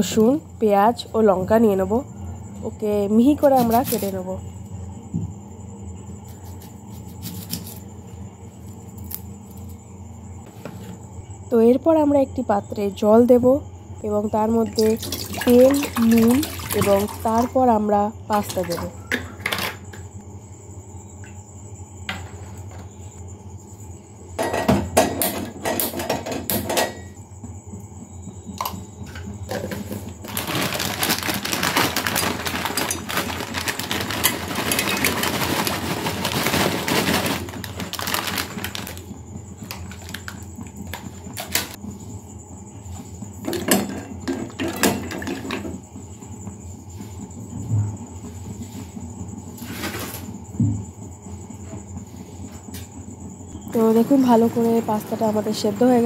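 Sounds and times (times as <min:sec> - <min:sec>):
dry pasta pouring into pot: 0:30.2 - 0:39.0.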